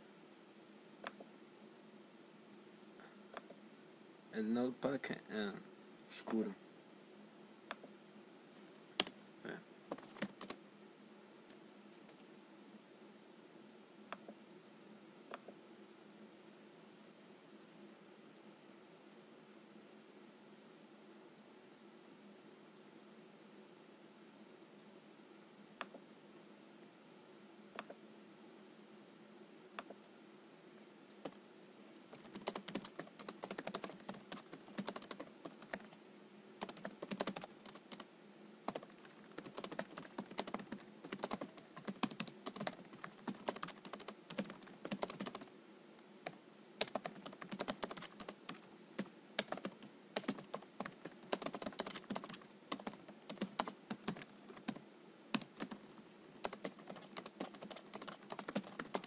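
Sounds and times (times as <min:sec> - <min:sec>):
faint low hum: 0:00.0 - 0:59.0
typing on computer keyboard: 0:09.9 - 0:10.6, 0:32.1 - 0:36.0, 0:36.6 - 0:38.0, 0:38.7 - 0:45.5, 0:46.8 - 0:59.0.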